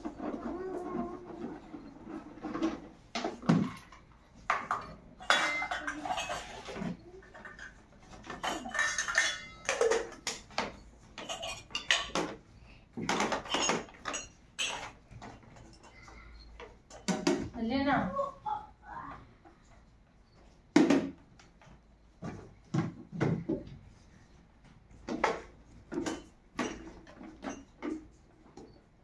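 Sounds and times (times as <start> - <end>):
dishes and pots clattering: 0.0 - 17.6, 25.0 - 28.8.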